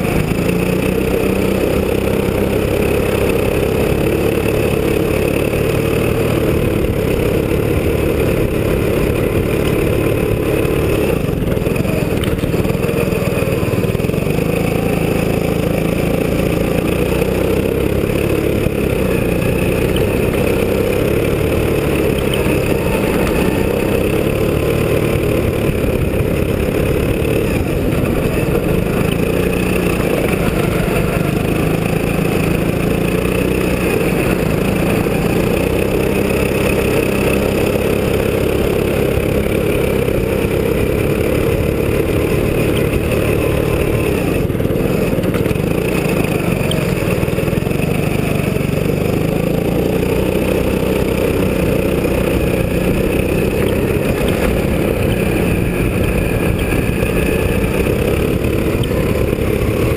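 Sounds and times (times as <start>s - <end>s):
go-kart engine running: 0.0s - 59.9s.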